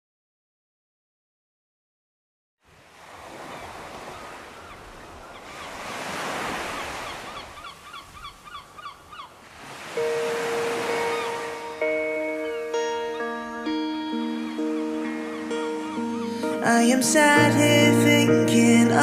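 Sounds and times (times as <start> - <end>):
ocean surf washing in: 2.7 - 8.0, 9.4 - 18.0
repeated bird calls: 3.5 - 16.8
music with held notes: 10.0 - 19.0.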